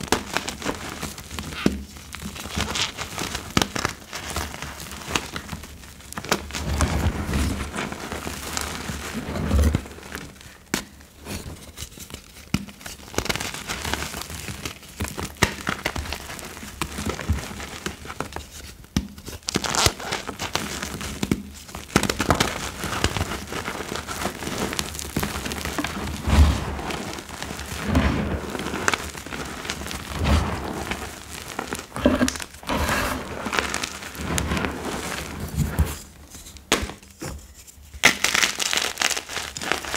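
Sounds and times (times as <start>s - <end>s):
hands crunching chalk powder: 19.2s - 36.1s.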